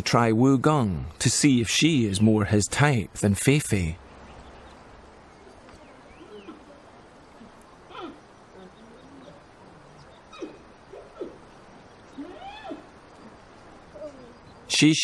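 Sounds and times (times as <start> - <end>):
panda chirping and bleating: 12.2 - 12.9.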